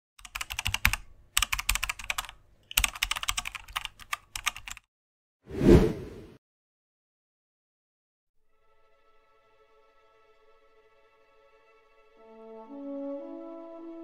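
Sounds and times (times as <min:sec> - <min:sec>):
rapid keyboard key clicks: 0:00.2 - 0:04.8.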